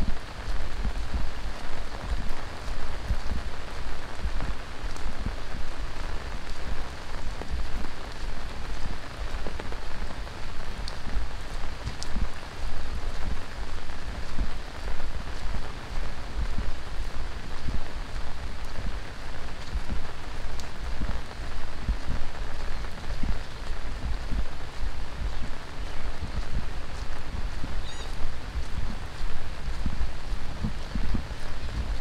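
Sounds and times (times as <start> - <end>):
heavy rain pouring: 0.0 - 32.0.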